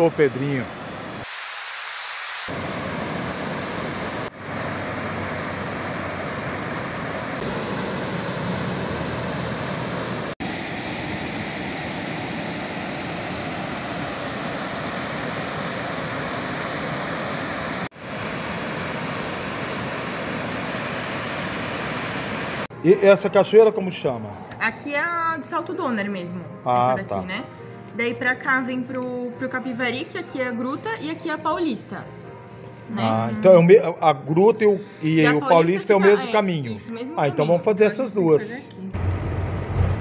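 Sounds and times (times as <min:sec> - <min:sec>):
waterfall rushing: 0:00.3 - 0:22.7.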